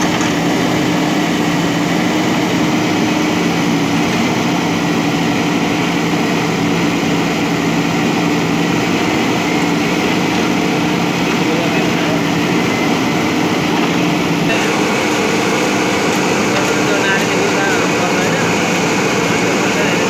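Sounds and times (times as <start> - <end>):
backhoe arm digging soil: 0.0 - 4.5
diesel engine running: 0.0 - 20.0.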